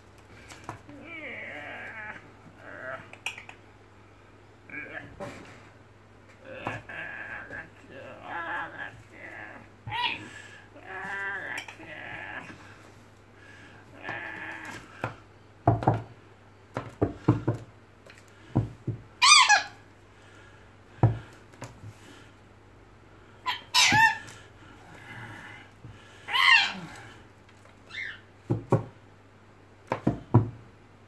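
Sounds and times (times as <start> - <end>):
knocks on wooden desktop: 15.6 - 16.1
parrot shrill screeches: 19.2 - 19.8, 23.5 - 24.3, 26.3 - 26.8, 27.9 - 28.2.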